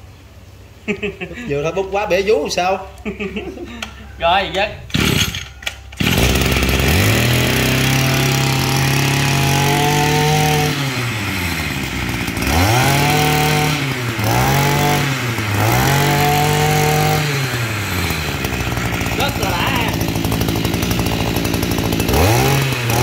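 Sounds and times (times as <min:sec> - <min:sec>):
brush cutter engine revving: 0:04.9 - 0:23.0.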